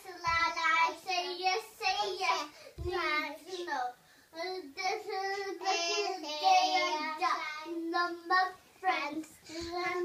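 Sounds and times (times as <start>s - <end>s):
girl singing: 0.0s - 10.0s.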